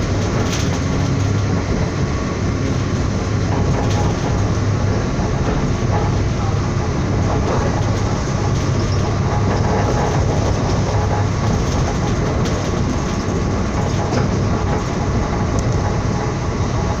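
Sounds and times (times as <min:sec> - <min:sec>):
train running on rails: 0:00.0 - 0:17.0.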